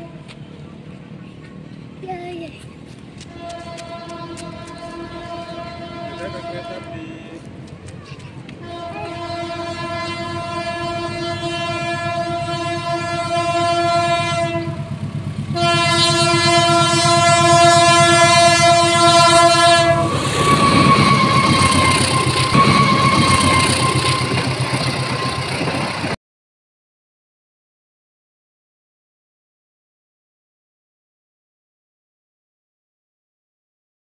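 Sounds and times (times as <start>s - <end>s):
train engine rumble: 0.0s - 26.2s
locomotive horn blasts: 3.3s - 7.4s, 8.6s - 25.5s
wheels clattering on rails: 20.1s - 26.2s.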